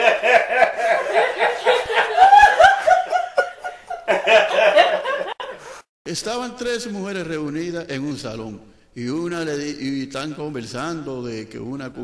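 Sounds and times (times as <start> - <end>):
people laughing: 0.0 - 5.8.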